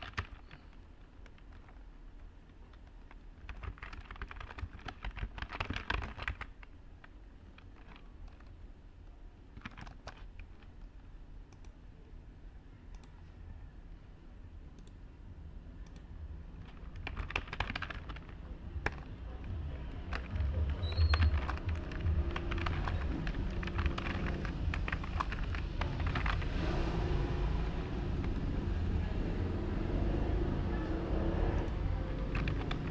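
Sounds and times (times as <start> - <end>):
computer keyboard typing: 0.0 - 8.6, 9.5 - 10.8, 16.6 - 26.9, 31.2 - 32.9
low background rumble: 0.0 - 32.9.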